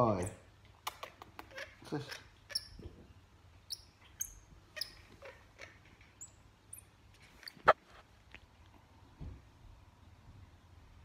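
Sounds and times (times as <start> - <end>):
monkey high-pitched chirps: 0.9 - 2.8, 3.7 - 6.9.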